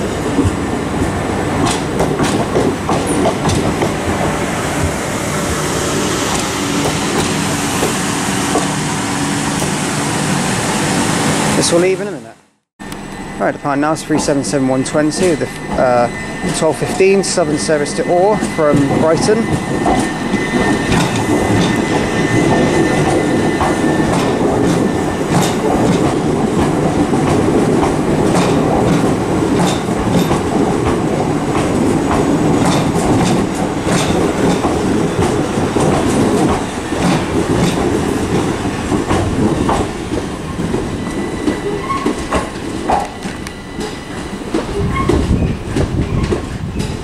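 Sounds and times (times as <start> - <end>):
wheels clicking over rail joints: 0.0 - 5.0, 13.8 - 47.0
electric train running past: 0.0 - 47.0
steady high train tone: 0.0 - 47.0.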